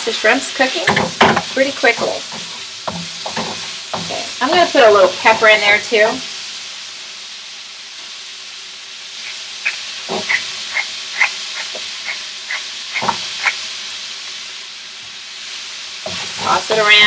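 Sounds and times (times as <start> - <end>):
shrimp sizzling in a skillet: 0.0 - 17.0
pepper grinder clicking: 9.6 - 12.6.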